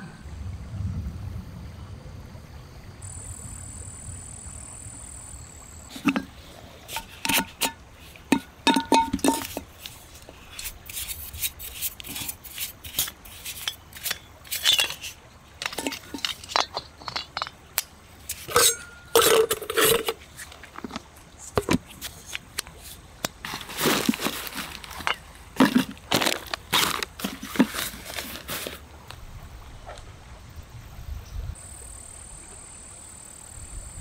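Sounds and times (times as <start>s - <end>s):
objects set down on stony ground: 5.9s - 11.3s, 12.0s - 28.8s
camp stove parts clinking: 5.9s - 28.8s.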